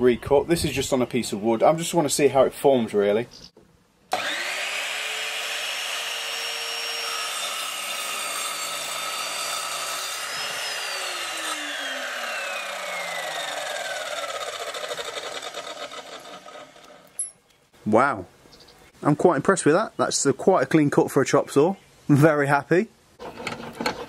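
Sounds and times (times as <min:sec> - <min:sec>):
chop saw cutting wood: 0:04.1 - 0:17.0
saw blade spinning down: 0:04.1 - 0:17.0.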